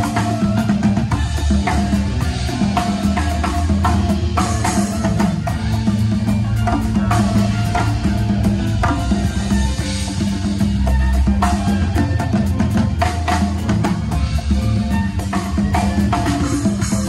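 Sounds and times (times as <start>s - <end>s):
congas: 0.0s - 17.0s
drum kit: 0.0s - 17.0s
electric bass: 0.0s - 17.0s.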